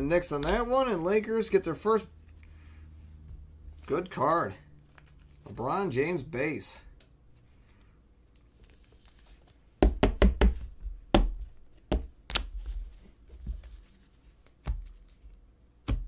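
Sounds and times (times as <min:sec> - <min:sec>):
cards knocking on tabletop: 0:09.8 - 0:12.1.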